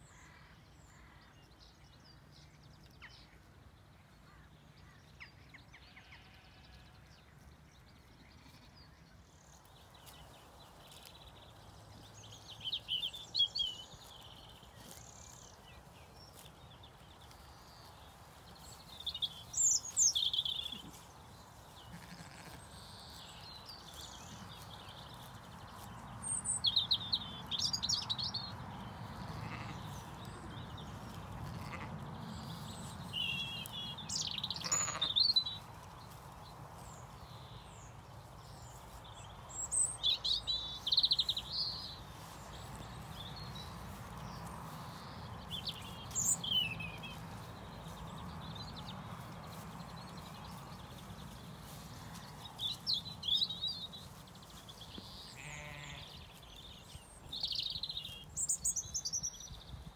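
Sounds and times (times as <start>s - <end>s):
songbirds chirping: 0.0s - 59.9s
sheep tearing and chewing grass: 9.7s - 12.2s, 13.1s - 21.8s, 22.5s - 26.3s, 35.6s - 37.5s, 41.3s - 55.8s.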